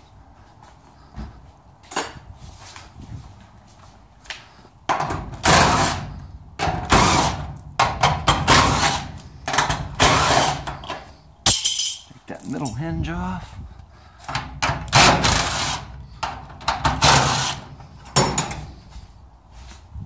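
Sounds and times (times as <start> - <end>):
cordless drill spinning out screws: 10.0 - 10.9, 14.9 - 15.9, 16.9 - 17.7.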